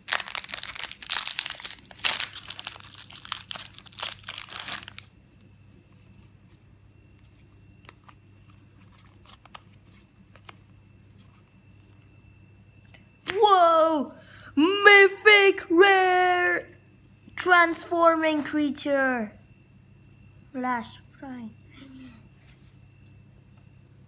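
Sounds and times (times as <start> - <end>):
foil wrapper crinkling: 0.0 - 5.1.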